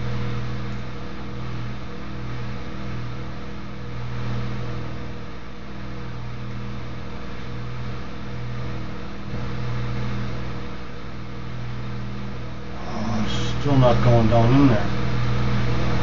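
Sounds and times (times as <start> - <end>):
electrical hum: 0.0 - 16.0
even hiss: 12.7 - 15.0.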